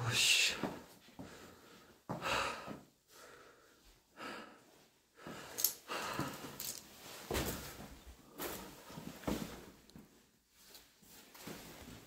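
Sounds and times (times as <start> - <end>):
person breathing: 0.6 - 6.8.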